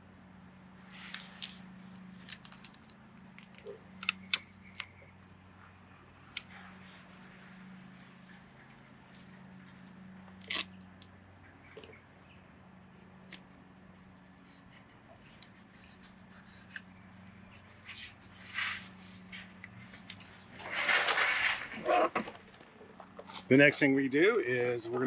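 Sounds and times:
faint low hum: 0.0 - 25.0
rubber strip rustling: 0.9 - 4.9, 9.8 - 11.1.

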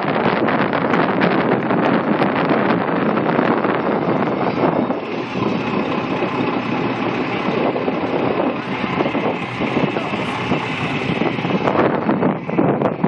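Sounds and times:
wind buffeting microphone: 0.0 - 13.0
fire truck engine idling: 3.4 - 13.0
background voices: 5.0 - 13.0.

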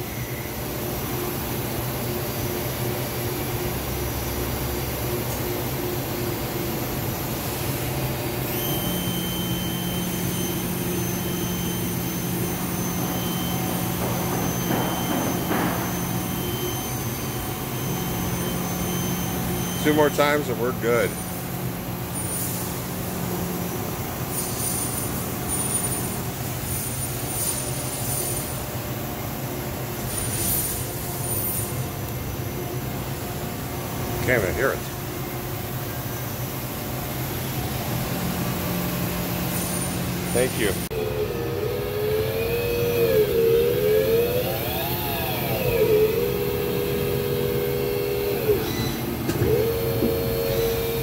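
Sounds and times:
thin high whine: 8.5 - 28.6, 29.2 - 51.0
lathe machine hum: 9.5 - 24.0, 37.3 - 51.0.

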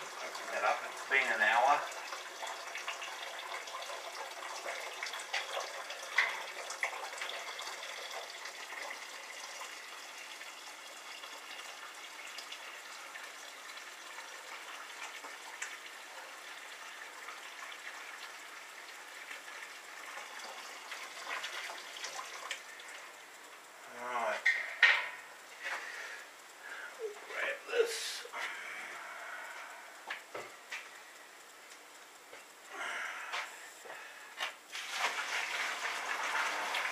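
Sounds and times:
liquid running into metal pot: 0.0 - 23.3, 34.7 - 36.9.

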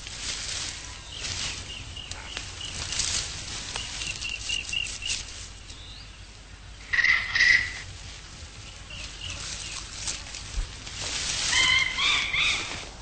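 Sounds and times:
rustles: 0.0 - 13.0
bird chirping: 0.8 - 7.8, 8.6 - 10.3.

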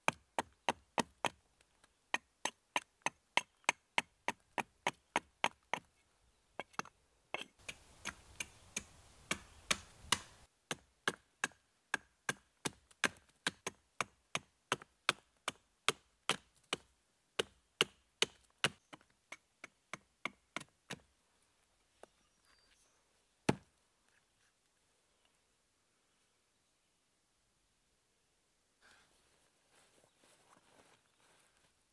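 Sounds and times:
hatchet chopping wood: 0.0 - 1.4, 6.6 - 21.1, 23.5 - 23.7.

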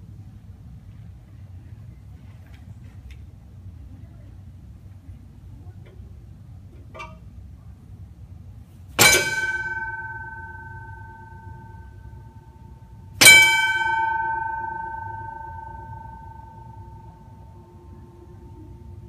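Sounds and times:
streetcar foot gong clanging: 5.8 - 7.7, 8.8 - 19.0.

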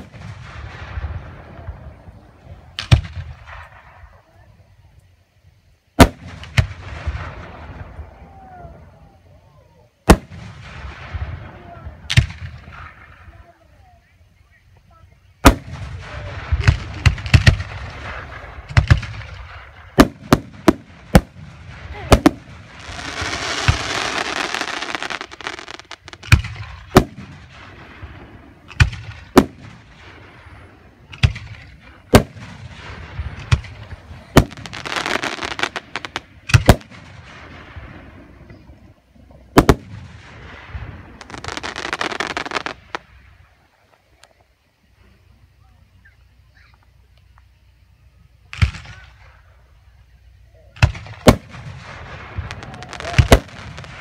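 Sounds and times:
firework shells booming: 0.0 - 4.2, 6.0 - 9.0, 10.0 - 13.4, 15.4 - 43.5, 48.5 - 49.6, 50.8 - 54.0
firework hissing: 14.9 - 43.8, 50.8 - 54.0.

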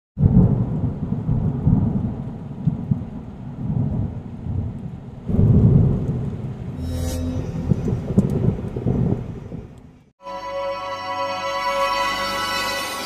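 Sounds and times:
rain: 0.2 - 6.8, 7.9 - 10.1
thunder rumbling: 0.2 - 6.9, 7.5 - 10.0.

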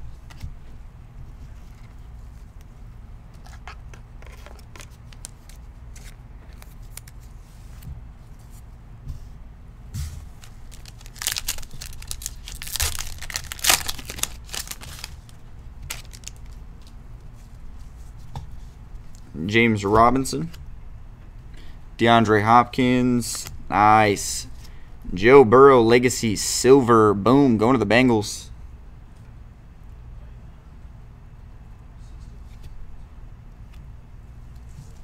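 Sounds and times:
low steady hum: 0.0 - 35.0
wrapper tearing and crinkling: 10.4 - 16.6.

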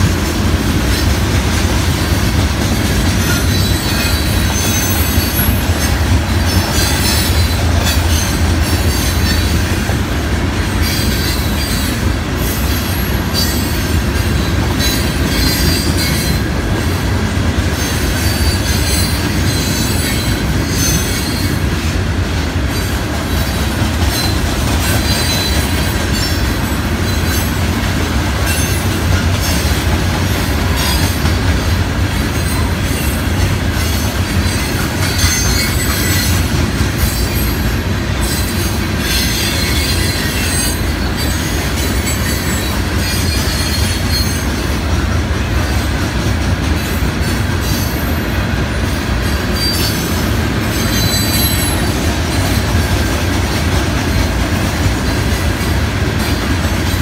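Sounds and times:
steel wheels rumbling on rail: 0.0 - 57.0
high wheel squeals: 3.2 - 9.6, 17.8 - 21.6, 23.3 - 27.6, 32.2 - 44.6, 49.3 - 52.7.

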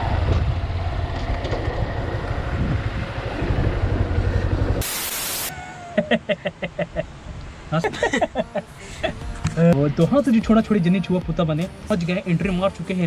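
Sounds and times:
motorcycle engine running: 0.0 - 4.8
wind rumble on microphone: 0.0 - 4.8
brief loud hiss: 4.8 - 5.5.

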